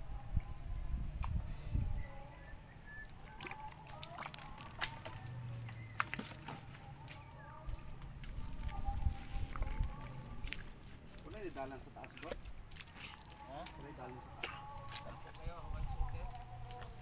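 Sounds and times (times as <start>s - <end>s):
rubber boots squelching in mud: 3.1s - 15.4s.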